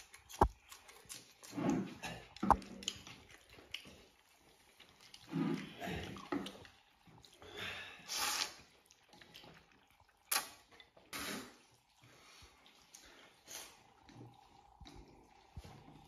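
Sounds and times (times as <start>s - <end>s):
chewing: 0.0s - 16.0s
person slurping noodles: 8.0s - 8.7s, 11.0s - 11.8s.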